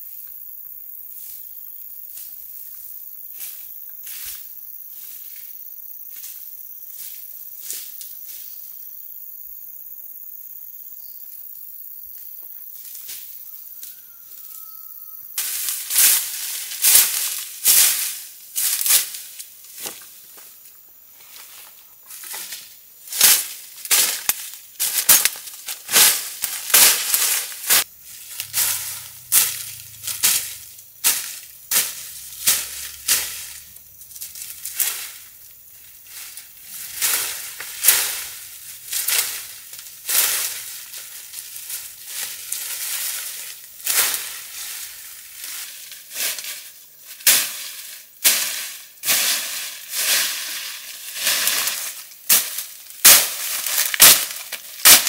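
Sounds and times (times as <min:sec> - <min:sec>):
sharp cracks and crunches: 0:22.1 - 0:35.5, 0:36.2 - 0:49.5, 0:50.8 - 0:55.0.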